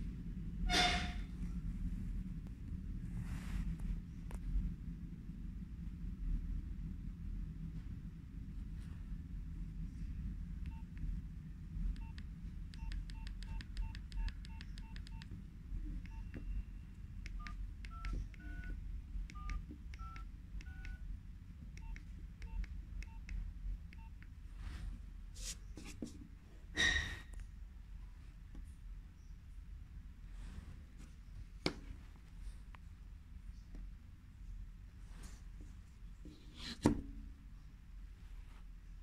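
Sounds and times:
phone key beeps: 0:10.7 - 0:11.0, 0:12.0 - 0:15.3, 0:16.0 - 0:21.0, 0:21.8 - 0:24.2
dual-tone dialing tones: 0:11.9 - 0:21.1, 0:21.8 - 0:24.2.

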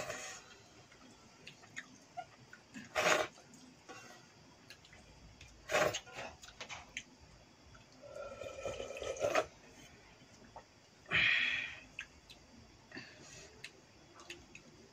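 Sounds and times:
person slurping water: 0:08.0 - 0:09.5.

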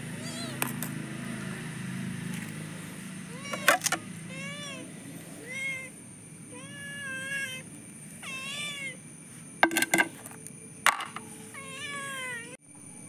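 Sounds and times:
cat meowing: 0:00.2 - 0:00.7, 0:03.3 - 0:09.0, 0:11.4 - 0:12.6.

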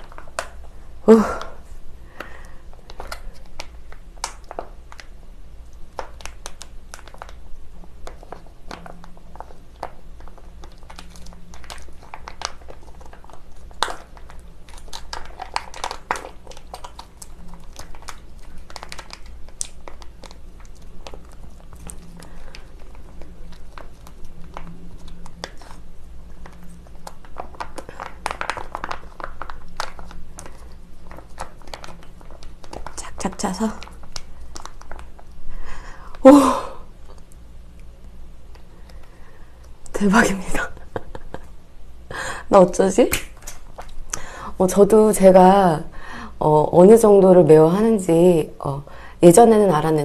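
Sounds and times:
plastic pouch crinkling: 0:05.8 - 0:35.5.

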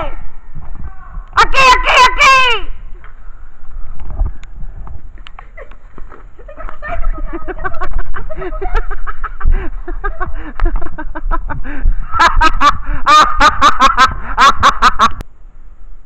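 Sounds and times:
person laughing: 0:05.3 - 0:15.2.

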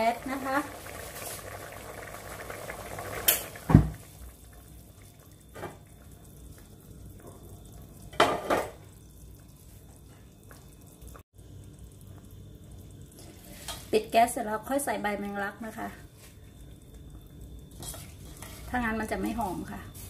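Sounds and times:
curry bubbling in a pot: 0:00.0 - 0:20.0.

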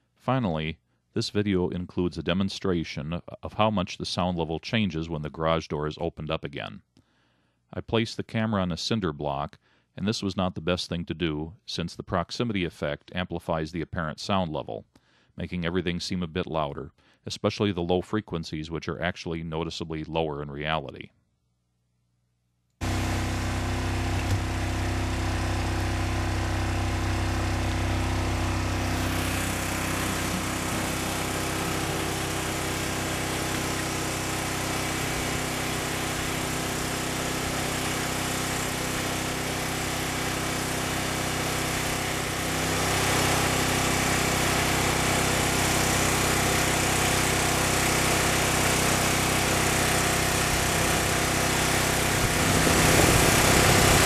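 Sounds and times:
generator engine running: 0:22.8 - 0:54.0.

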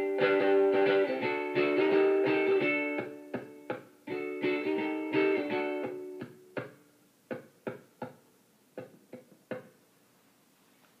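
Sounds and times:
guitar chords ringing: 0:00.0 - 0:07.0
plucked guitar notes: 0:00.0 - 0:08.2.

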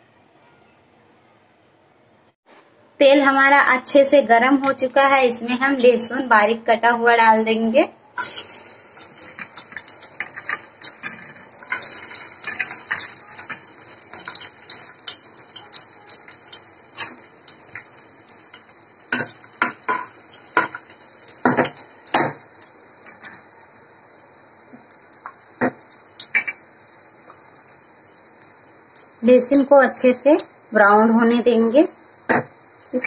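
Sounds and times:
garlic sizzling in hot oil: 0:08.2 - 0:33.0.

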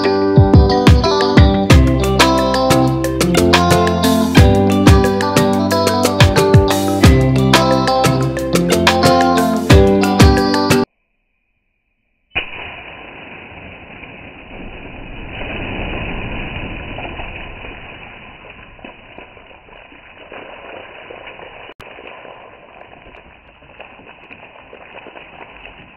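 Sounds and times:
water balloon popping: 0:12.4 - 0:14.6
muffled rush of splashing water: 0:12.4 - 0:25.9.

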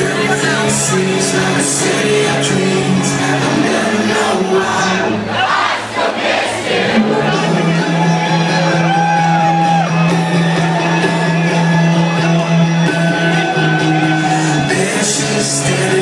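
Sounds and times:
loud trance music: 0:07.0 - 0:16.0.

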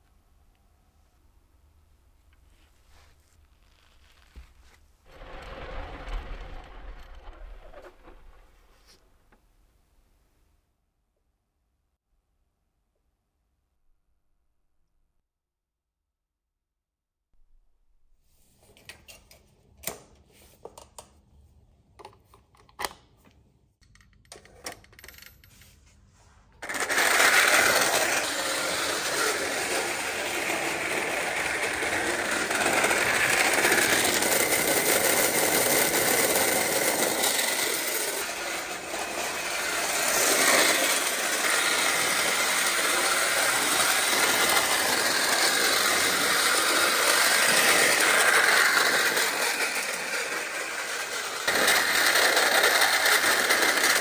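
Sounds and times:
toy electric train running on track: 0:26.6 - 0:54.0.

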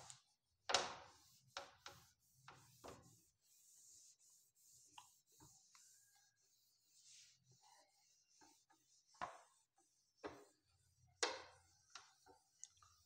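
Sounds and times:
eraser rubbing on whiteboard: 0:00.0 - 0:13.0.

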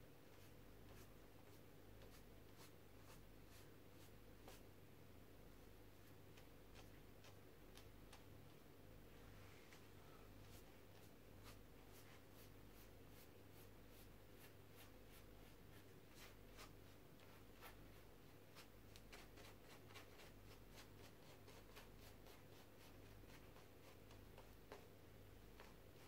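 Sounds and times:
low electrical hum: 0:00.0 - 0:26.0
brush scratching on paper: 0:00.3 - 0:04.6, 0:10.4 - 0:24.9.

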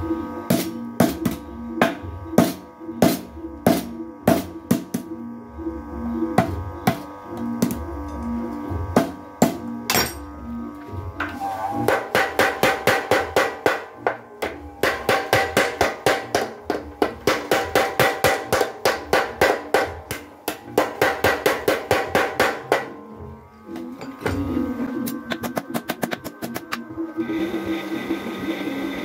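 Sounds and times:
power hammer pounding: 0:08.9 - 0:10.2, 0:11.9 - 0:23.0.

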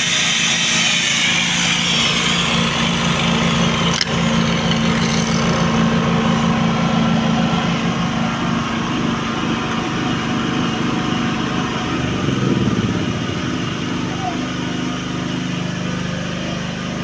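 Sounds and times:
generator engine hum: 0:00.0 - 0:17.0.

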